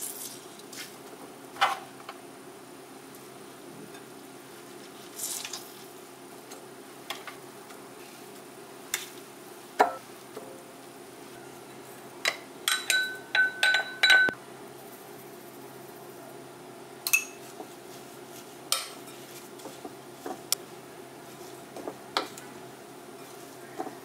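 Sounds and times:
utensils clinking against glass bowl: 0:12.2 - 0:14.4, 0:17.0 - 0:17.4.

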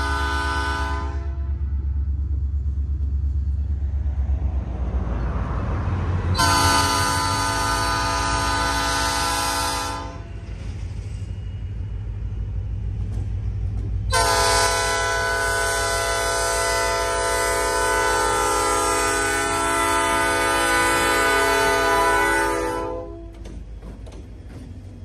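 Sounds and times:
train air horn blasts: 0:00.0 - 0:01.7, 0:06.3 - 0:10.3, 0:14.1 - 0:23.4
diesel engine rumble: 0:00.0 - 0:22.6.

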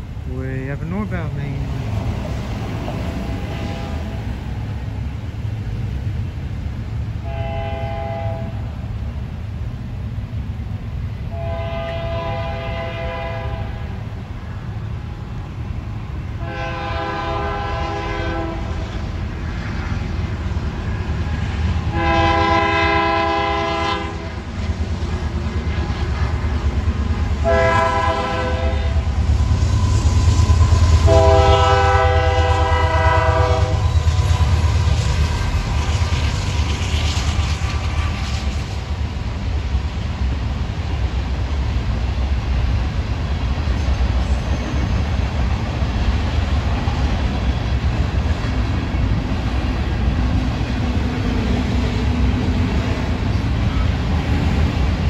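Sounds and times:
deep rumble of train: 0:00.0 - 0:55.0
locomotive air horn blasts: 0:03.5 - 0:04.1, 0:07.2 - 0:08.6, 0:11.3 - 0:13.8, 0:16.4 - 0:18.7, 0:21.9 - 0:24.3, 0:27.4 - 0:29.0, 0:31.0 - 0:33.9.

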